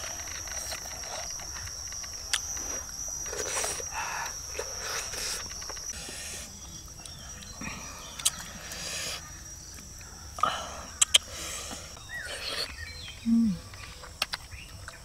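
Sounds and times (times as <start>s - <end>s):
high-pitched insect drone: 0.0s - 14.5s
chewing and lip-smacking: 8.1s - 8.8s, 11.0s - 11.3s.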